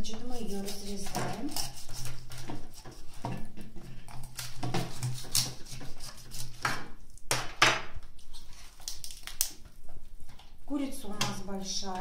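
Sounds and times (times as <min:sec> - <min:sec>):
knife cutting raw chicken: 0:00.2 - 0:07.0.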